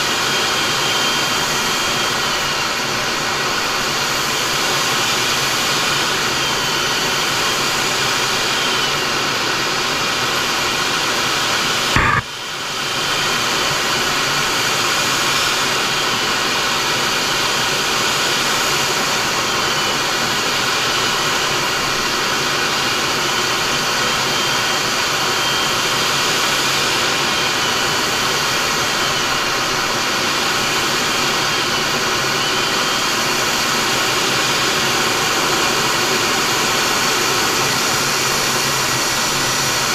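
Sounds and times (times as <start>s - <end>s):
jet engine and airflow noise: 0.0s - 39.9s
sharp click: 12.0s - 12.3s.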